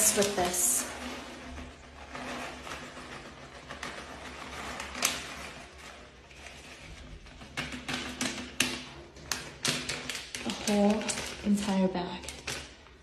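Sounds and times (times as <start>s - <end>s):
plastic bag crinkling: 10.3s - 13.0s.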